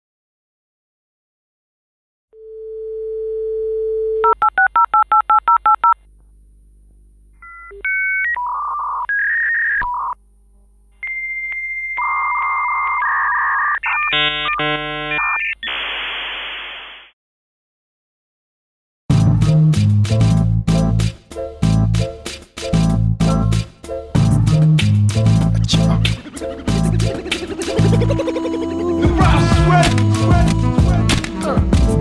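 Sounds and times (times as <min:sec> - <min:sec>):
dial tone: 0:02.4 - 0:06.0, 0:11.0 - 0:15.6
modem hiss: 0:10.0 - 0:17.1
modem handshake whistles and chirps: 0:11.0 - 0:15.6.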